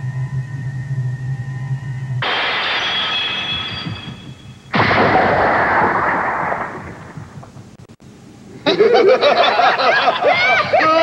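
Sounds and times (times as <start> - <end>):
cartoon explosion burst: 2.2 - 7.4.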